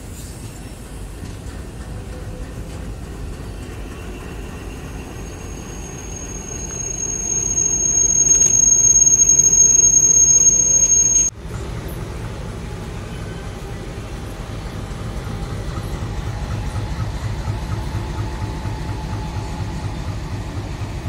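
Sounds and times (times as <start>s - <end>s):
passenger train rumbling past: 0.0s - 21.0s
high-pitched wheel and brake squeal: 3.8s - 11.3s.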